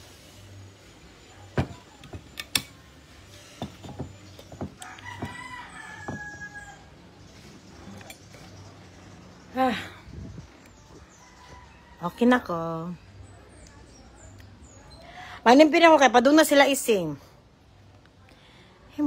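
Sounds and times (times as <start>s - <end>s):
rooster crowing: 4.8s - 6.9s.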